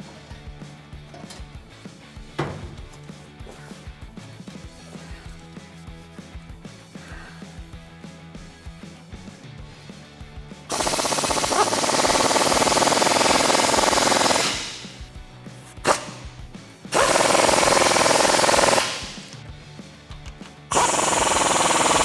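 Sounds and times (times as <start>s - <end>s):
impact wrench hammering: 10.7s - 15.0s, 15.8s - 19.4s, 20.7s - 22.0s.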